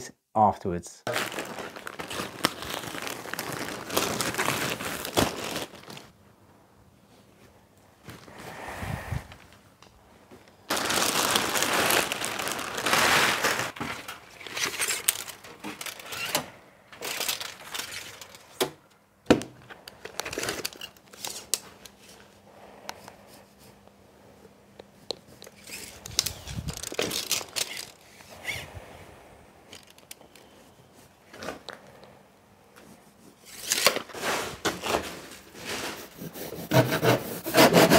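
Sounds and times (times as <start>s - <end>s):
insulation and plastic rustling: 1.1s - 6.2s, 10.2s - 22.4s, 24.8s - 28.8s, 29.6s - 36.2s.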